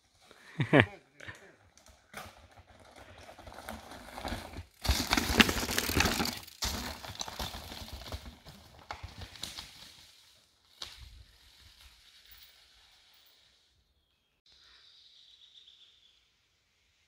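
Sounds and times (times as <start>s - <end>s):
bike rattling: 1.5s - 12.8s
tyres crunching over stones: 3.6s - 9.5s.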